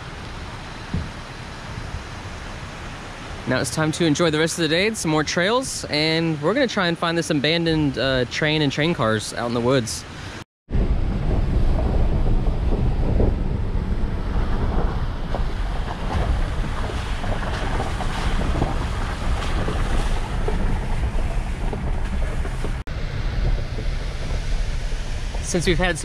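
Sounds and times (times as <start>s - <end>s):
road and engine noise: 0.0s - 26.0s
gravel pops under tyres: 11.0s - 25.6s.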